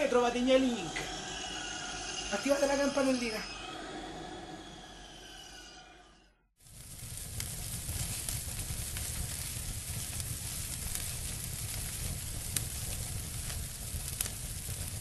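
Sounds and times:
crackling fire: 0:06.6 - 0:15.0
fire popping: 0:06.6 - 0:15.0.

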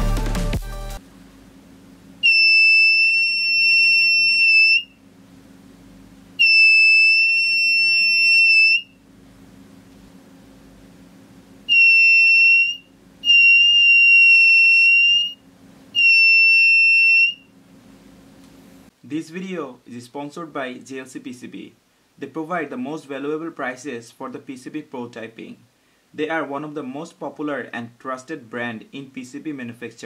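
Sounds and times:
high-pitched buzzer beeps: 0:02.2 - 0:04.9, 0:06.4 - 0:09.0, 0:11.7 - 0:15.4, 0:16.0 - 0:17.5.

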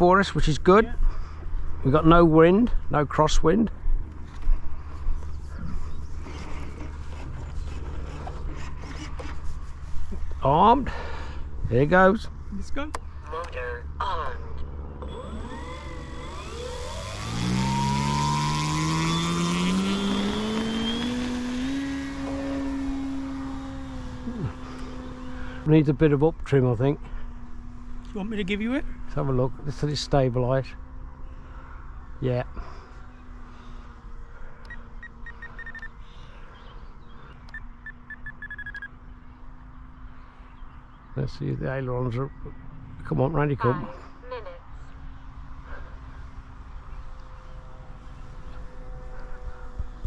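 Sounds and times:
faint hum with low rumble: 0:00.0 - 0:18.3, 0:22.3 - 0:50.0
electric motor and propeller: 0:03.9 - 0:10.4, 0:14.6 - 0:25.7, 0:32.6 - 0:39.1, 0:46.6 - 0:50.0
short electronic beeps: 0:34.7 - 0:35.9, 0:37.5 - 0:39.0.

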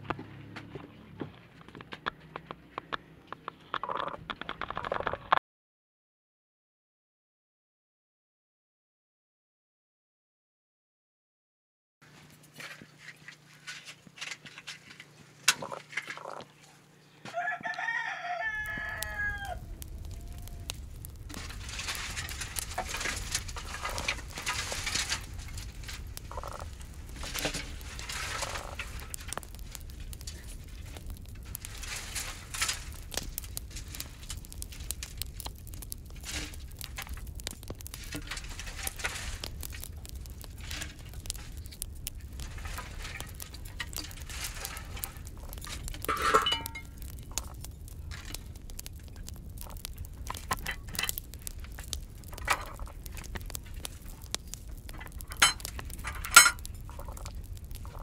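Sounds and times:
twigs rustling and snapping: 0:01.6 - 0:05.4, 0:12.0 - 0:58.0
rooster crowing: 0:17.2 - 0:20.9
steady low rumble: 0:18.8 - 0:58.0.

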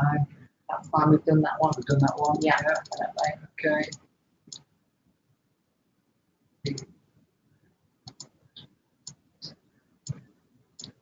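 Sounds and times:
mouse and keyboard clicks: 0:01.7 - 0:04.6, 0:06.7 - 0:06.9, 0:08.1 - 0:08.3, 0:10.8 - 0:11.0.

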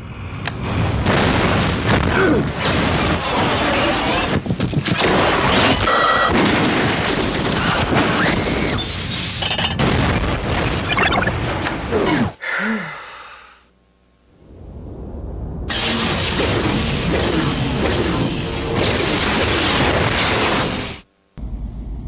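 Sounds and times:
booming explosions: 0:00.6 - 0:08.4, 0:09.8 - 0:12.2, 0:14.4 - 0:21.0
gunfire: 0:01.0 - 0:08.4, 0:15.7 - 0:21.0.

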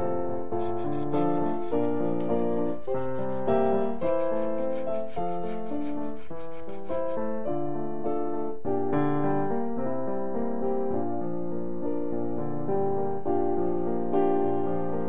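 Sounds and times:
piano music: 0:00.0 - 0:15.0
stone being filed by hand: 0:00.6 - 0:07.2.

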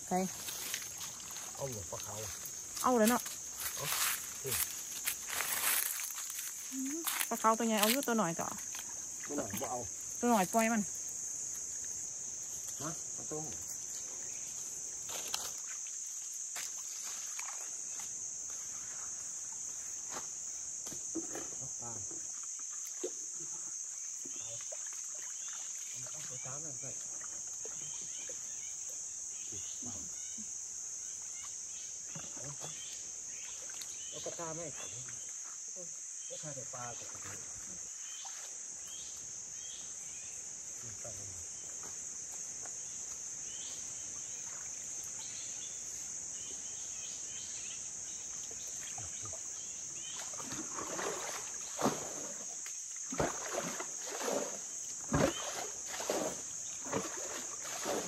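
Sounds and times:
insects buzzing: 0:00.0 - 0:58.0
water splashing and sloshing: 0:00.1 - 0:10.7, 0:13.6 - 0:21.5, 0:22.1 - 0:23.4, 0:24.2 - 0:28.5, 0:32.1 - 0:34.4, 0:36.9 - 0:38.7, 0:48.2 - 0:58.0.

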